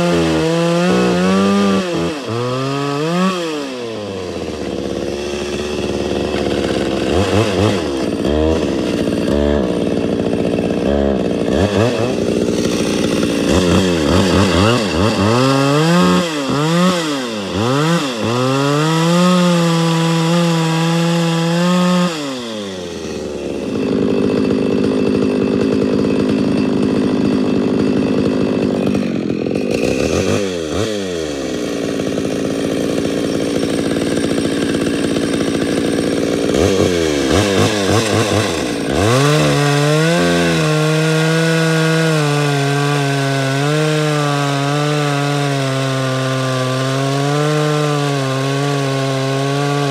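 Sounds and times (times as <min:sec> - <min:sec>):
chainsaw cutting log: 0:00.0 - 0:49.9
chainsaw revving and idling: 0:00.0 - 0:49.9.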